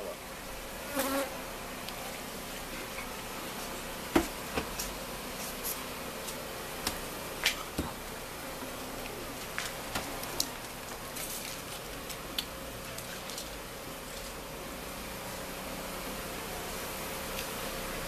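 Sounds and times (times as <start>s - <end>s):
honeybees buzzing: 0.0s - 18.0s
wooden hive covers knocking: 3.9s - 4.9s, 5.5s - 8.2s.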